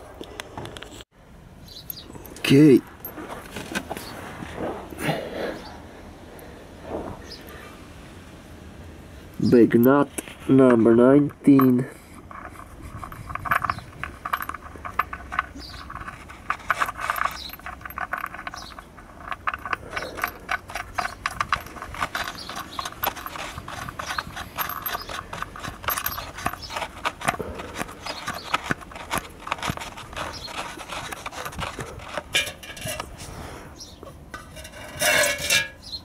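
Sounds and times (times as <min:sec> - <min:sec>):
metal clicking and scraping: 0:09.7 - 0:33.3, 0:34.0 - 0:36.0.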